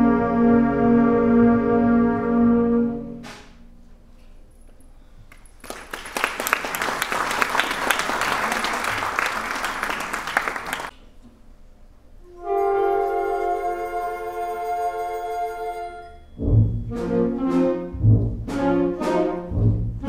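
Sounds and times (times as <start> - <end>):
concert band brass chords: 0.0 - 3.4, 12.2 - 20.0
audience applauding: 5.3 - 10.9.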